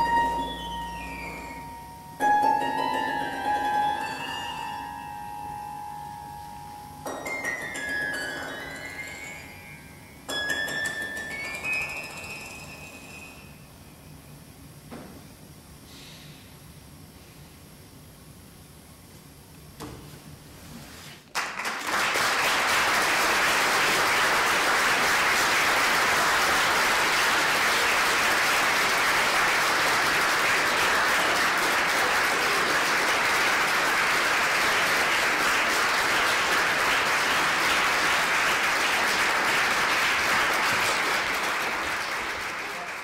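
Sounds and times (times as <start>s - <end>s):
audience applauding: 21.3s - 43.0s.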